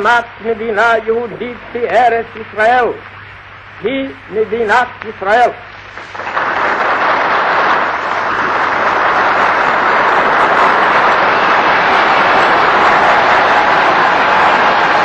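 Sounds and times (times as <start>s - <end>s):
large audience applauding: 6.0s - 15.0s.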